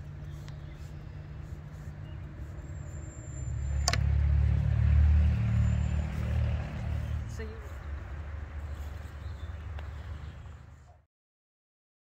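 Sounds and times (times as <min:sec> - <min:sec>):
passing vehicle engine rumble: 0:00.0 - 0:11.0
sharp click: 0:03.8 - 0:04.1.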